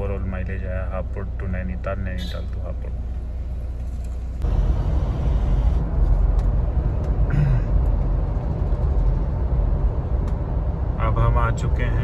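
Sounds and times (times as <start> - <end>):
road and engine noise in cabin: 0.0 - 12.0.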